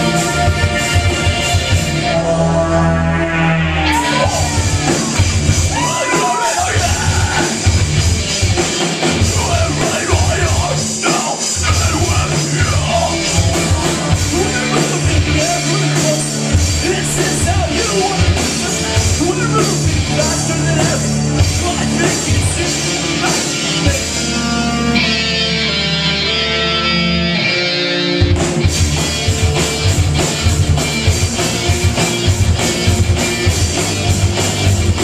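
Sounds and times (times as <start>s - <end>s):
bass guitar: 0.0s - 35.0s
drums: 0.0s - 35.0s
electric guitars: 0.0s - 35.0s
person singing: 9.2s - 24.4s.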